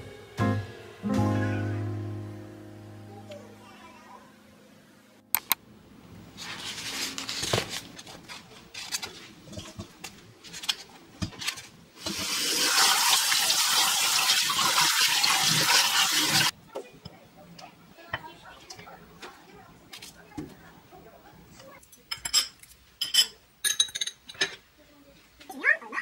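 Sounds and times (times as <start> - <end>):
tap water running into colander: 12.0 - 16.5.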